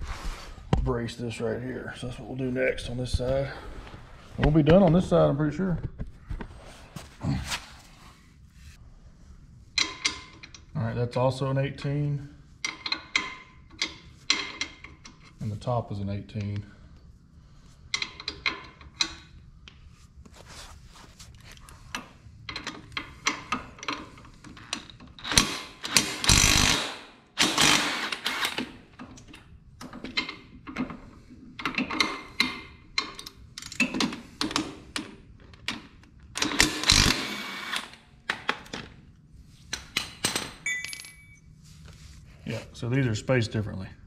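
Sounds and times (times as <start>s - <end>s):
impact wrench bursts: 25.2s - 28.8s, 36.4s - 38.0s
metal parts clinking: 39.9s - 41.4s.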